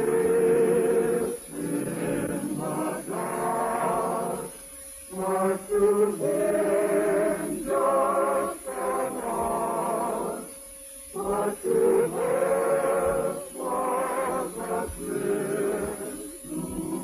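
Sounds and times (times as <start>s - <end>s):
choir singing on old radio: 0.0s - 17.0s.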